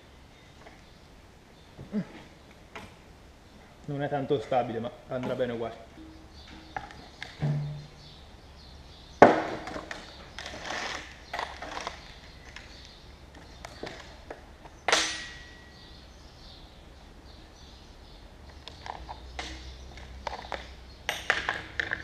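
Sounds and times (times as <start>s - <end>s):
sharp knock with metallic ring: 14.9s - 15.8s.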